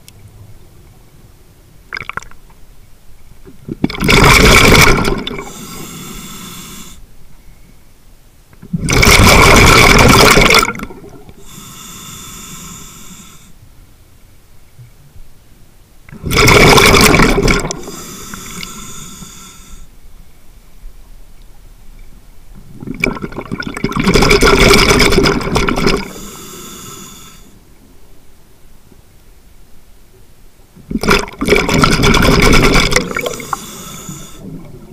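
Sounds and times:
exhaled bubbles rushing: 3.7 - 5.5, 8.8 - 11.3, 16.2 - 17.9, 22.8 - 26.1, 30.9 - 33.5
regulator inhale hiss: 5.2 - 7.8, 11.4 - 13.6, 17.0 - 19.9, 25.8 - 27.6, 32.8 - 34.5.

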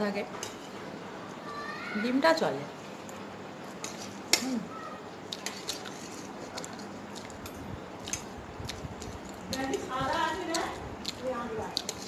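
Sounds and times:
person chewing noodles: 5.3 - 9.5, 10.5 - 12.0.

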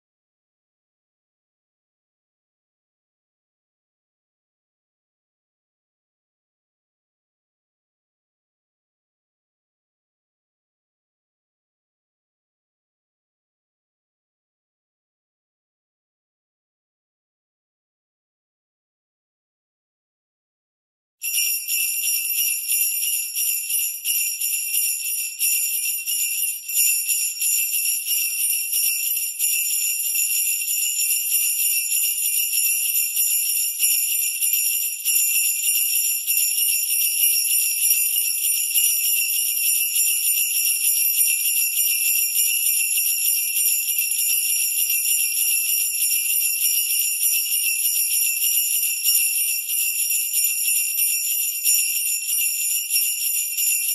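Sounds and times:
sleigh bells jingling: 21.2 - 53.9.

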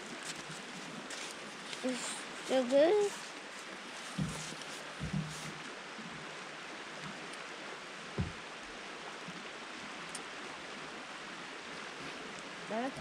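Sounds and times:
river flowing: 0.0 - 13.0
soft thump: 4.2 - 5.5, 8.2 - 8.4.

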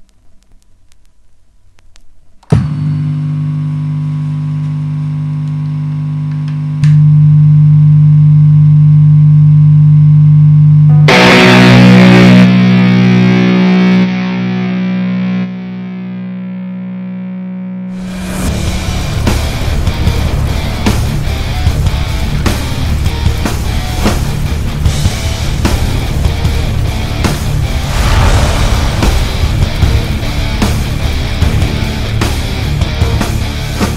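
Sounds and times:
distorted electric guitar chord: 10.8 - 24.0
harsh noisy blast: 17.9 - 22.5, 27.3 - 32.8.

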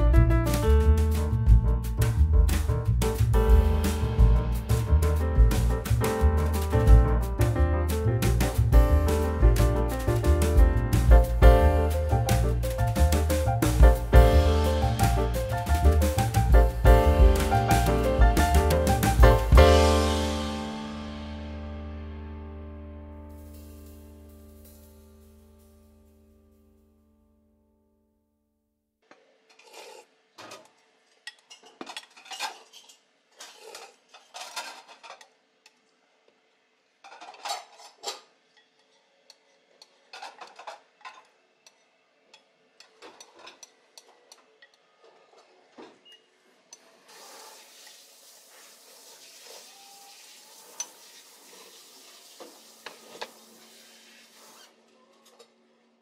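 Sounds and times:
steady hiss: 2.6 - 22.5, 47.0 - 54.7.

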